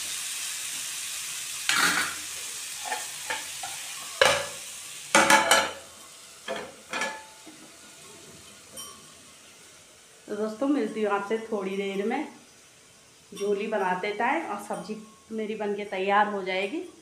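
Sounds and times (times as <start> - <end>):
vegetable sizzling in a pan: 0.0 - 17.0
spatula scraping a pan: 1.7 - 4.6.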